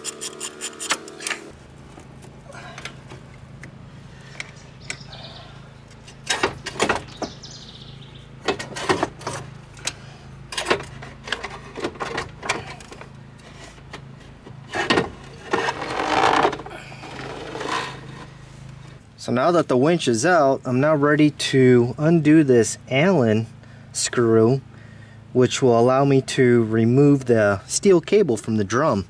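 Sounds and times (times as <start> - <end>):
ratchet clicking: 0.0 - 1.4
steady low hum: 0.0 - 29.0.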